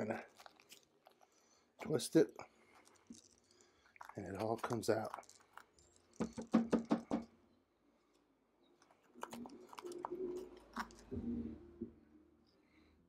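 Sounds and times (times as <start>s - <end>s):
spoon crunching inside pepper: 0.1s - 2.0s, 2.8s - 6.4s, 8.8s - 11.1s.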